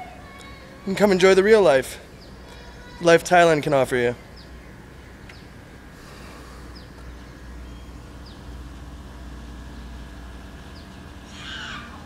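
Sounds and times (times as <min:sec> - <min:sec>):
steady low rumble: 0:00.0 - 0:12.0
high falling bird chirps: 0:04.1 - 0:12.0.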